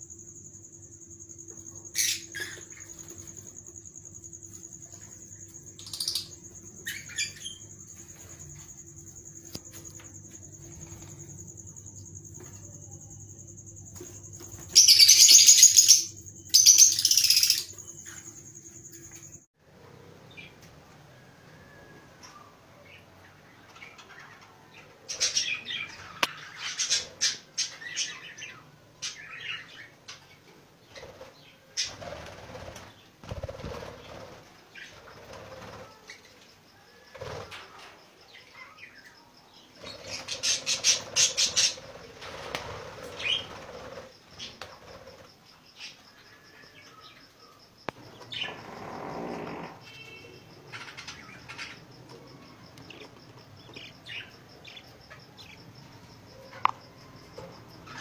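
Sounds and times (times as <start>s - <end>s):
wingbeats fluttering: 30.9s - 36.3s, 37.0s - 37.9s, 39.8s - 45.4s.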